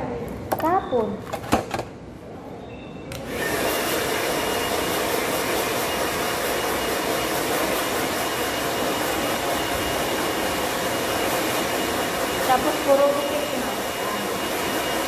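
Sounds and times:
electric fan running: 3.1s - 15.0s.

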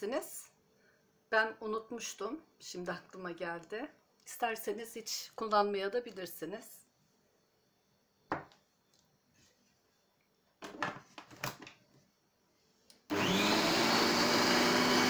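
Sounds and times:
food processor motor running: 13.1s - 15.0s.

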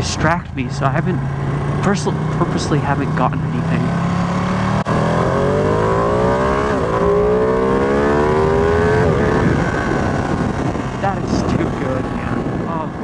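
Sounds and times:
motorcycle engine accelerating: 0.0s - 13.0s
wind noise on microphone: 6.7s - 13.0s.

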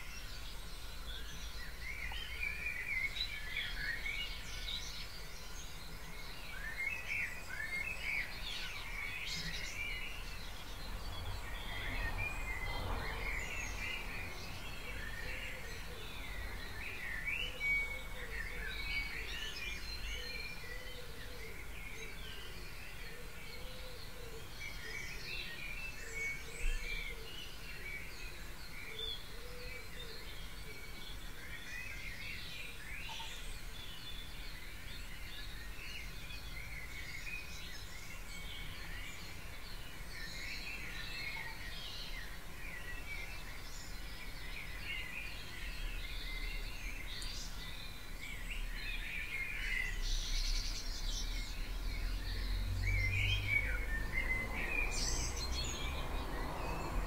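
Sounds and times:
songbirds chirping and trilling: 0.0s - 57.0s.

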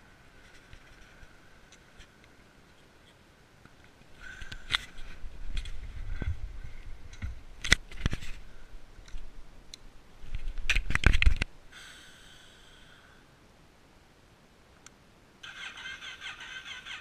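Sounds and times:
faint steady whine: 0.0s - 17.0s.

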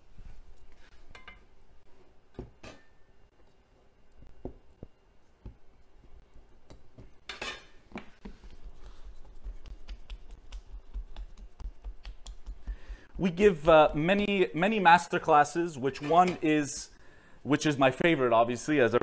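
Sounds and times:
hands tapping on kitchen counter: 9.4s - 13.2s.

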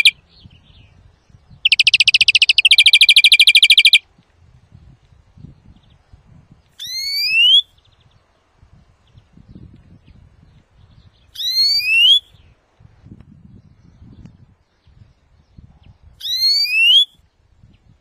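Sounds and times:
bird fast trill: 0.0s - 0.2s, 1.6s - 4.0s, 11.4s - 12.3s, 16.2s - 17.1s
rising whistled bird note: 11.4s - 12.4s, 16.2s - 17.2s.

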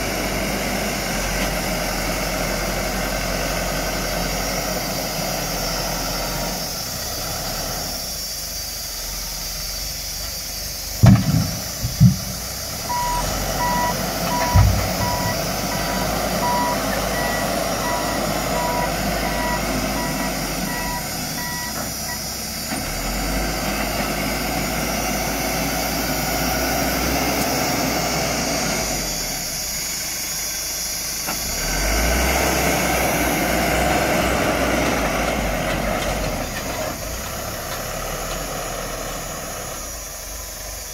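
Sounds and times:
diesel engine running: 0.0s - 40.9s
loud knocks: 11.0s - 12.6s, 14.3s - 15.4s
reversing alarm beeping: 12.0s - 22.4s.

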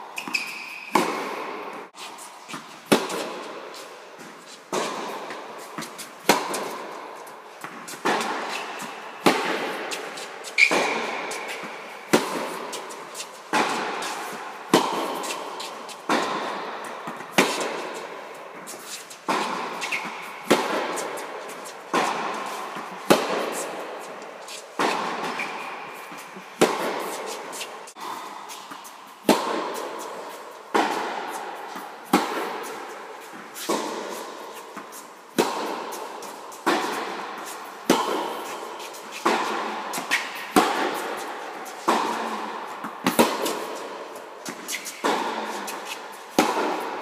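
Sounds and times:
racquet striking tennis ball: 0.2s - 47.0s
tennis ball bouncing: 0.2s - 47.0s.

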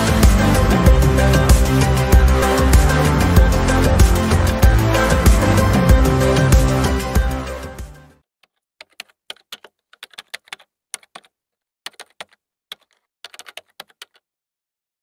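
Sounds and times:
keyboard typing clicks: 8.4s - 11.3s, 11.9s - 14.3s.

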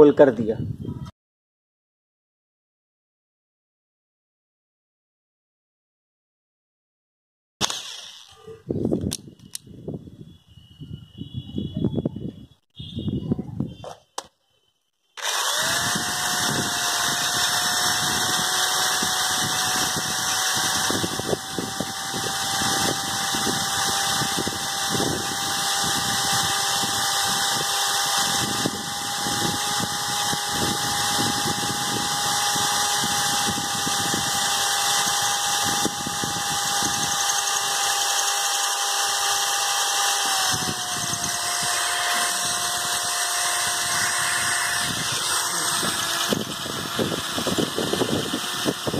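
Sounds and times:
drill motor whine: 7.6s - 8.4s, 15.1s - 48.9s
drill bit grinding against concrete: 7.6s - 9.6s, 15.2s - 48.9s.

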